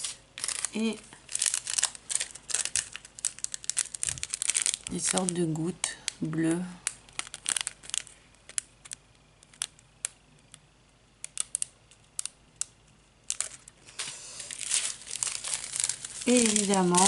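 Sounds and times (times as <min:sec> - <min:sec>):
plastic bag crinkling: 0:00.0 - 0:09.8, 0:13.2 - 0:17.0.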